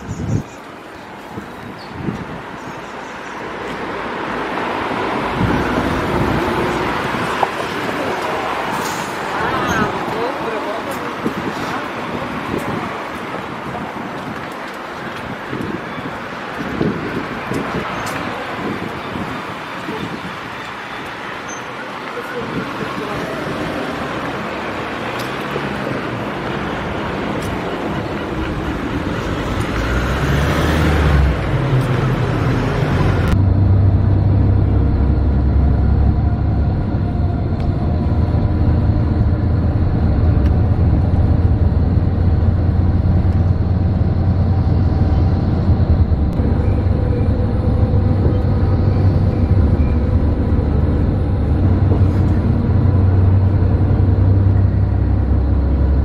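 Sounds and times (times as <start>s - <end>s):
city street traffic: 0.0s - 56.0s
vehicle rumble from inside: 22.6s - 56.0s.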